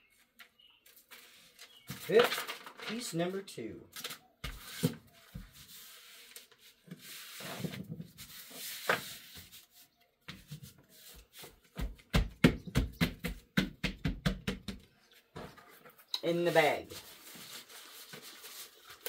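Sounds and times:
rustling and scraping plastic: 0.2s - 3.2s, 3.9s - 11.7s, 15.2s - 19.0s.

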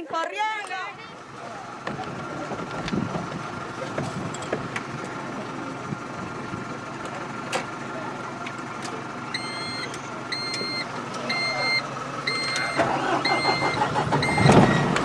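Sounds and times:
keys jingling in ignition: 4.2s - 4.6s
dashboard warning beeps: 9.3s - 15.0s.

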